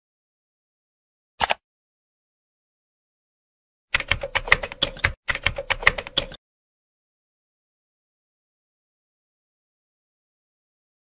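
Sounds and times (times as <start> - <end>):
computer keyboard typing: 1.4 - 1.6, 3.9 - 6.4
sharp click: 1.4 - 1.6.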